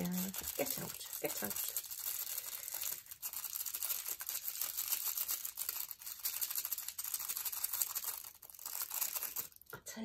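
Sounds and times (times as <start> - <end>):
plastic packet rustling: 0.0 - 9.8
small plastic beads rattling: 0.0 - 9.8.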